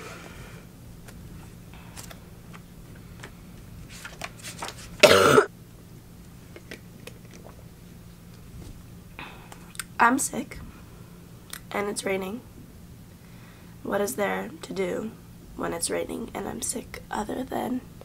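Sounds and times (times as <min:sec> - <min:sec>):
woman coughing: 0:05.0 - 0:05.5.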